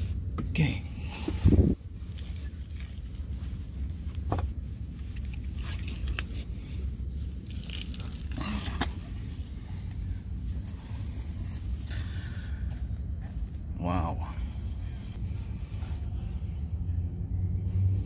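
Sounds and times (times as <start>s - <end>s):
steady low rumble: 0.0s - 18.0s
cloth rubbing on car: 0.6s - 12.2s.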